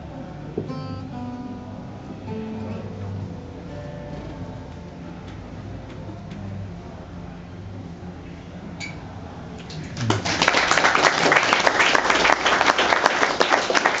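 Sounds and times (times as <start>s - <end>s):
audience clapping: 9.6s - 14.0s.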